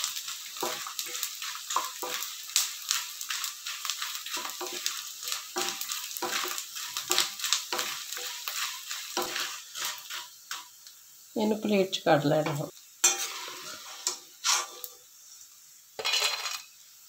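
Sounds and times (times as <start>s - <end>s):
spatula stirring in pan: 0.0s - 10.9s, 11.5s - 15.0s
frying sizzle with crackles: 0.0s - 17.0s.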